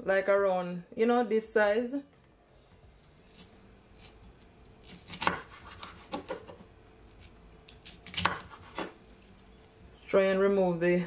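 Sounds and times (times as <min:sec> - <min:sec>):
knife slicing pepper: 0:03.2 - 0:06.6, 0:07.2 - 0:09.0.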